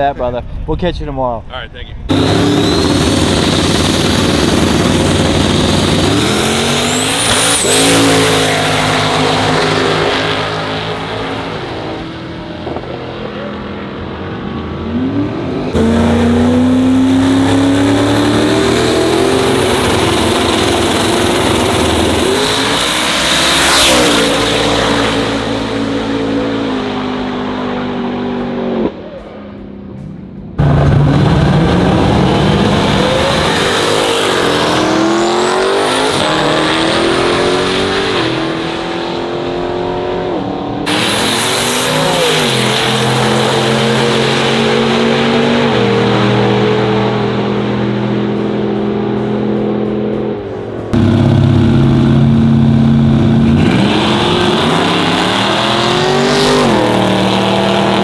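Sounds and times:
race car engines revving: 2.0s - 58.0s.

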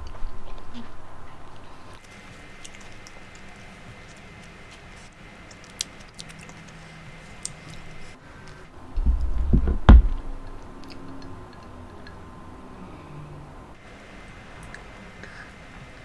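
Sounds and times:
mouth clicks of chewing: 5.4s - 8.0s
low rumbling bump: 8.9s - 10.6s.

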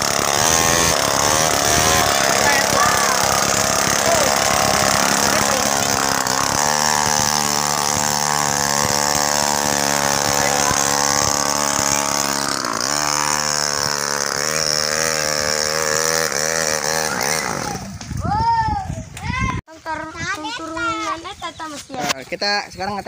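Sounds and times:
small engine running under load: 0.0s - 18.2s.

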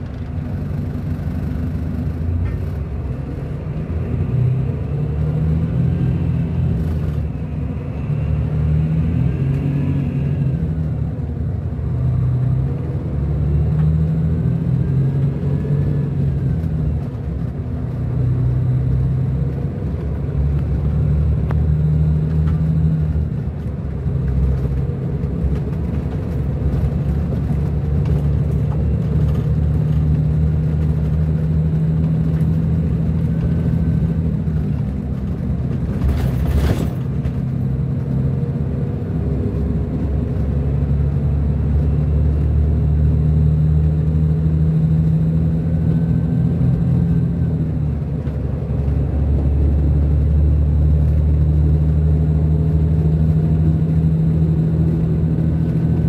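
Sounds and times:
diesel coach engine rumbling: 0.0s - 56.0s.

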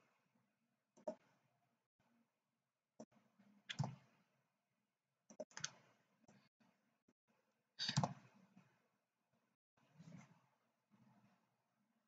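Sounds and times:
computer mouse clicks: 1.0s - 1.2s, 3.7s - 4.0s, 5.3s - 6.4s, 7.8s - 8.2s.

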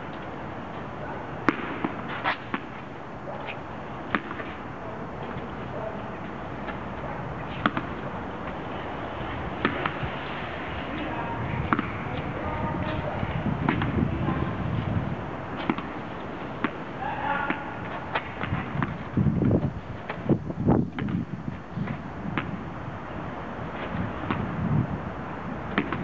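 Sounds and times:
steady background noise: 0.0s - 26.0s
tennis ball bouncing on concrete: 1.4s - 4.6s, 5.2s - 8.6s, 9.4s - 10.1s, 10.9s - 14.1s, 14.9s - 20.3s, 20.9s - 22.6s, 23.8s - 24.6s, 25.7s - 26.0s.

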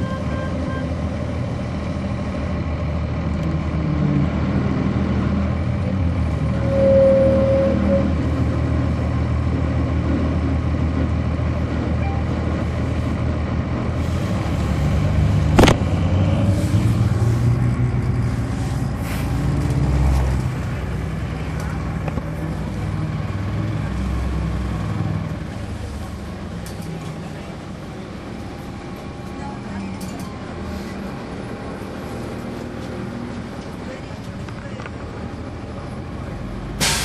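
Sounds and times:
bus diesel engine running: 0.0s - 37.0s
steady beep: 6.6s - 8.2s, 12.0s - 12.3s.

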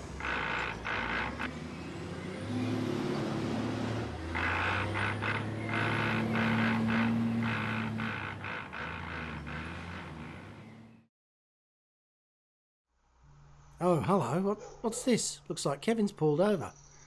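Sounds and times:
truck engine pulling away: 0.0s - 11.1s.

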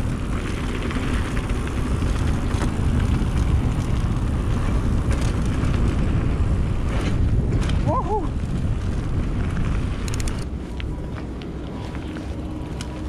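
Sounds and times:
low rumble of bike riding: 0.0s - 13.0s
wind rushing over microphone: 0.0s - 13.0s
faint clicks and rattles: 0.4s - 6.0s, 9.5s - 11.8s.

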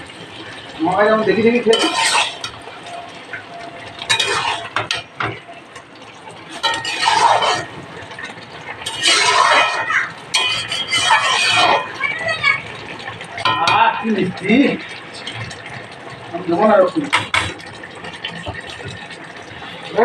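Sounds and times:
metal spatula scraping wok: 1.2s - 3.1s, 4.0s - 5.4s, 6.5s - 7.8s, 8.8s - 12.0s.

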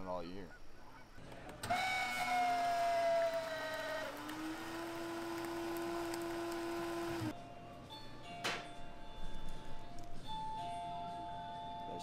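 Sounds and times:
coffee machine motor whine: 1.6s - 7.3s.

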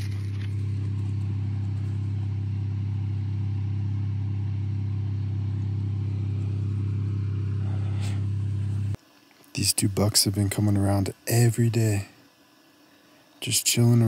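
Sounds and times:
engine idling: 0.0s - 9.0s.

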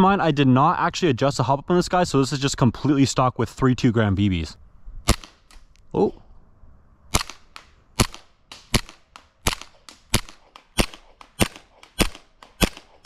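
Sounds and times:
airsoft pistol shots: 5.1s - 5.6s, 7.1s - 13.0s.

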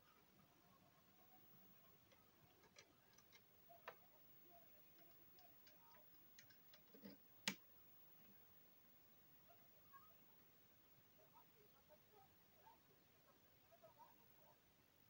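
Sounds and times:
light clicks and ticks: 1.5s - 8.5s.

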